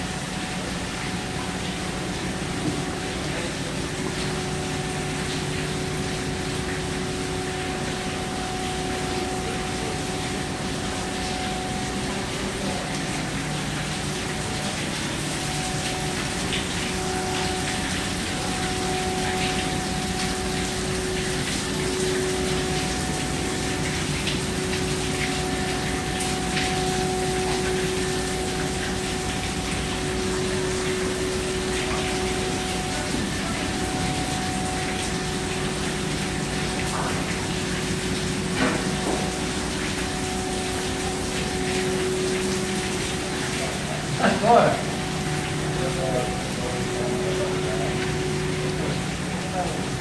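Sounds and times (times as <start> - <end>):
ship machinery humming: 0.0 - 50.0
water rushing: 0.0 - 50.0.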